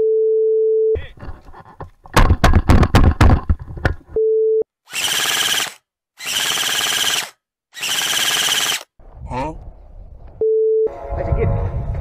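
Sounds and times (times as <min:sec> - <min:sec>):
rapid rattling bursts: 0:04.9 - 0:08.9.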